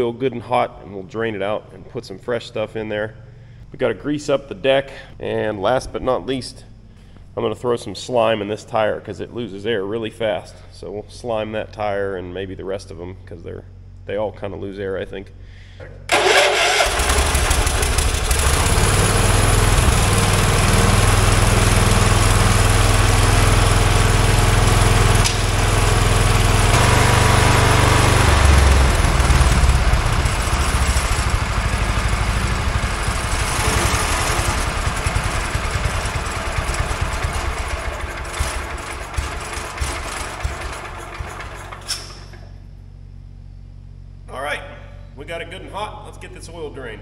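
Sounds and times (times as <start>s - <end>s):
garden tractor engine running: 16.1s - 42.4s.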